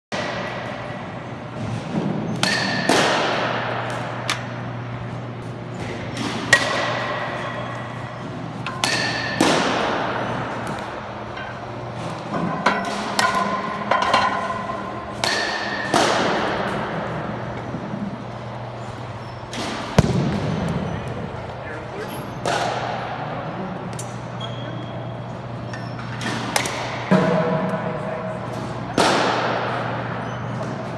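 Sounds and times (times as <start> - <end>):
steady low hum: 0.1 - 30.9
bat cracking against baseball: 1.9 - 17.6, 22.4 - 23.2, 28.6 - 30.9.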